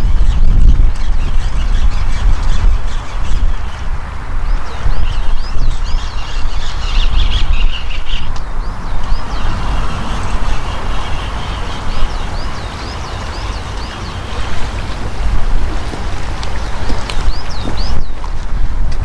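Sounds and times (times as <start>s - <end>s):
wind buffeting microphone: 0.0s - 19.0s
bird calling high notes: 9.1s - 14.9s.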